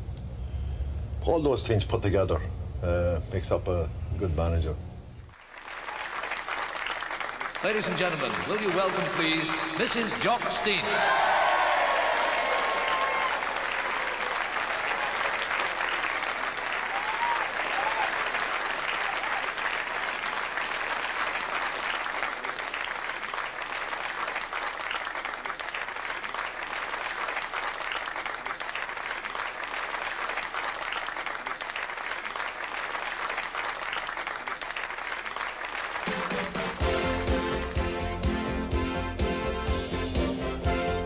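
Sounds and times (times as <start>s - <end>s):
audience applauding: 5.3s - 37.8s.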